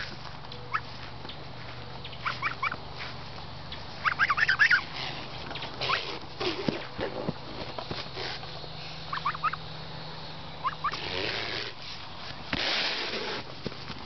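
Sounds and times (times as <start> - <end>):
fowl calling: 0.0 - 1.0, 1.6 - 2.9, 3.7 - 6.9, 8.2 - 9.7, 10.6 - 11.2.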